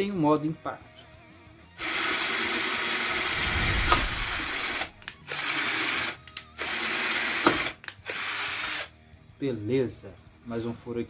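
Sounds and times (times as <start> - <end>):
cordless drill drilling into brick: 1.8 - 8.9.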